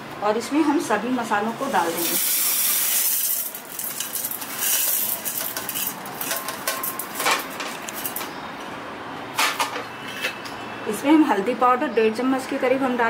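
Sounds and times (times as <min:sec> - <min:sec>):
dry spices pouring into metal jar: 0:01.8 - 0:07.0.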